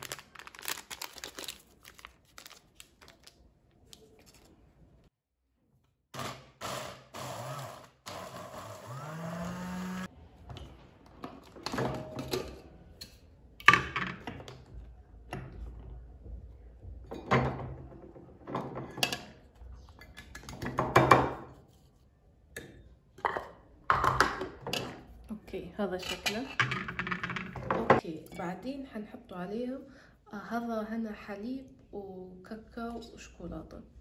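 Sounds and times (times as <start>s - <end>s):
electric food chopper grinding: 6.2s - 10.1s.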